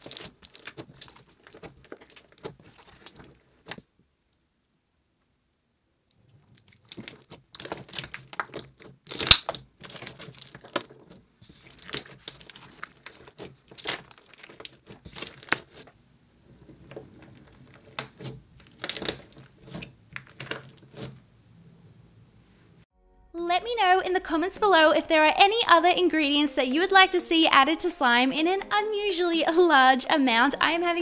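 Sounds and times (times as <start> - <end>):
putty crackling and popping: 0.0 - 3.8, 6.1 - 16.0, 16.9 - 21.2.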